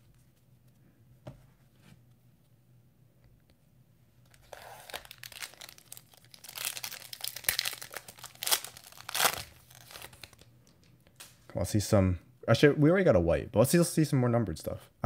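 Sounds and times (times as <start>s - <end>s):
foil pack tearing and crinkling: 4.4s - 10.4s.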